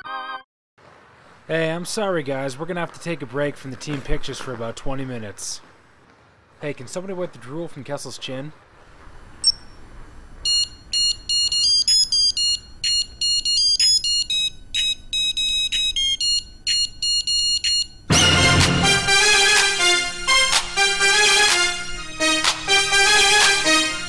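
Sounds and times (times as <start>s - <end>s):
high electronic beeps tune: 10.5s - 18.2s
loud music: 18.1s - 24.0s.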